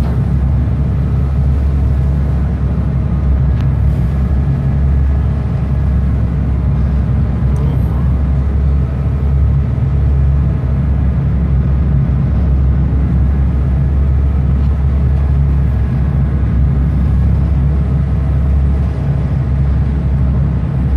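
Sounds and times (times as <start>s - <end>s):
diesel boat engine drone: 0.0s - 20.9s.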